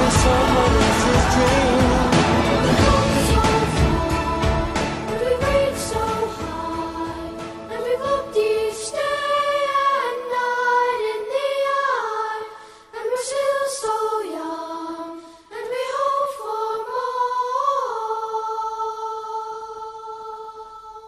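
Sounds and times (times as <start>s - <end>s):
man and woman singing: 0.0s - 9.2s.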